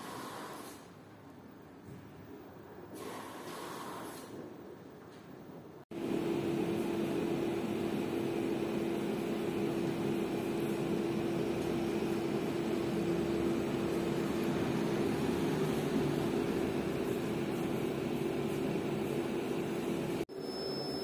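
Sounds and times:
tumble dryer drone: 0:05.9 - 0:20.2.

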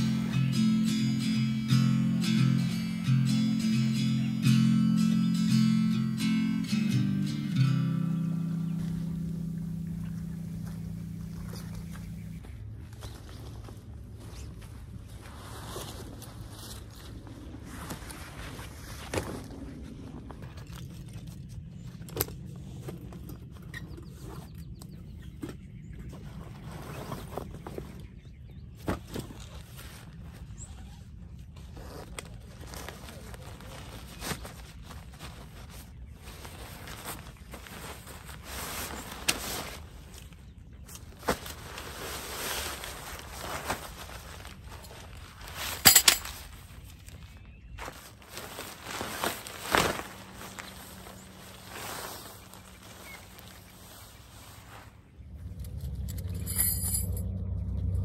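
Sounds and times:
dry bag rustling and crinkling: 0:26.2 - 0:55.8
low rumble: 0:54.9 - 0:58.0.

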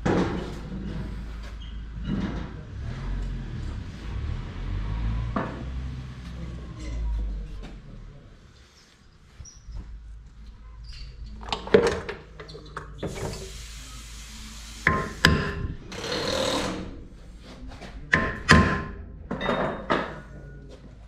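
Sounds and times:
tools knocking on metal parts: 0:18.1 - 0:20.2.

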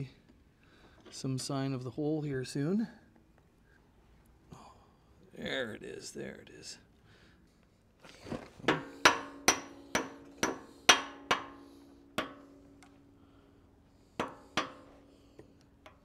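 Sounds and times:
hammer striking metal: 0:08.7 - 0:13.2, 0:14.1 - 0:16.0.

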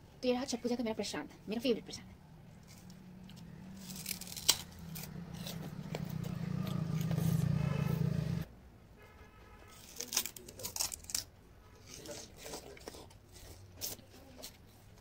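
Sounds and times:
steady low hum: 0:00.9 - 0:08.5
sugarcane being bitten and torn: 0:02.5 - 0:07.9, 0:09.7 - 0:14.1.

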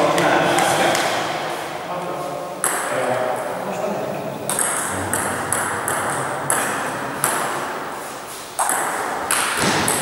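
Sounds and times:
table tennis ball hits: 0:02.6 - 0:02.9, 0:04.5 - 0:07.9, 0:08.6 - 0:10.0.

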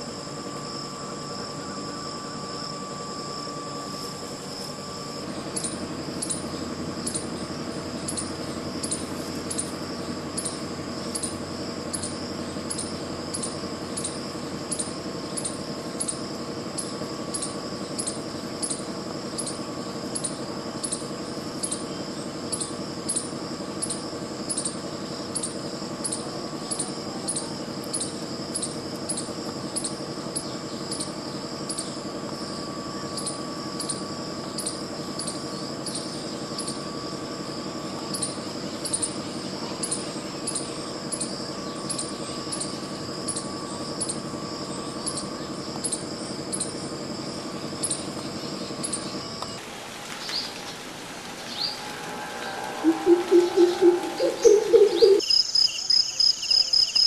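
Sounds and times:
high-pitched insect drone: 0:00.0 - 0:57.0
insect chirping: 0:00.0 - 0:57.0
low hum: 0:47.4 - 0:55.6.

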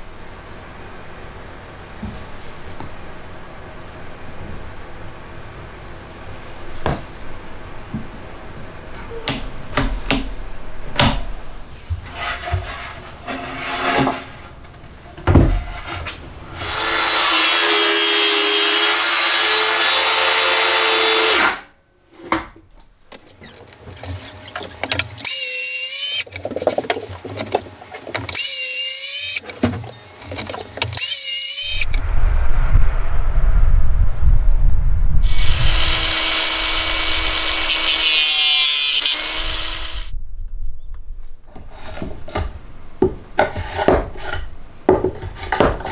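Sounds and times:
power drill running: 0:16.6 - 0:21.6, 0:25.2 - 0:26.2, 0:28.3 - 0:29.4, 0:31.0 - 0:31.8, 0:35.2 - 0:40.1
rough hissing power tool: 0:16.6 - 0:21.6, 0:31.0 - 0:31.9, 0:35.2 - 0:40.1.

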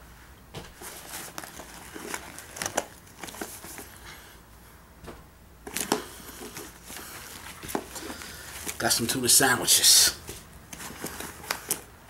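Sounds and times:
food packaging rustling: 0:00.8 - 0:04.2, 0:05.7 - 0:09.4, 0:10.2 - 0:11.9.

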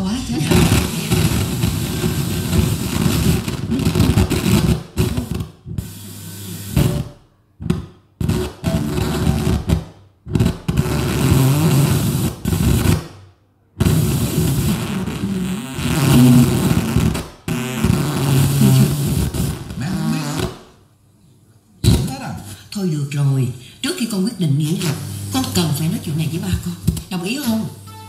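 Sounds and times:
radio tuned across stations: 0:00.0 - 0:07.0, 0:08.3 - 0:09.8, 0:24.2 - 0:28.0.

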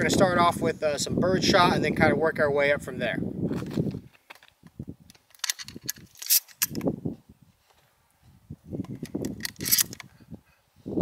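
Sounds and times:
shells clicking into shotgun magazine: 0:04.3 - 0:06.9, 0:08.9 - 0:10.1.

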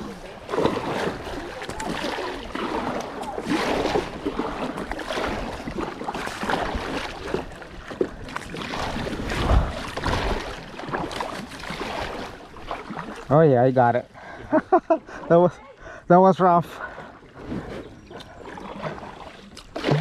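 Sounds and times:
paddle strokes splashing: 0:00.0 - 0:15.3, 0:16.7 - 0:20.0
rushing water: 0:00.0 - 0:15.6, 0:16.3 - 0:20.0
wind on microphone: 0:08.6 - 0:10.6.

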